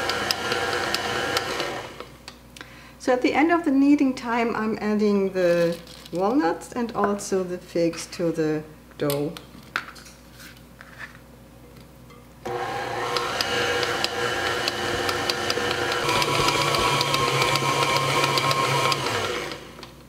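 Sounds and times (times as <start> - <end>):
stand mixer motor running: 0.0 - 2.0, 12.5 - 19.8.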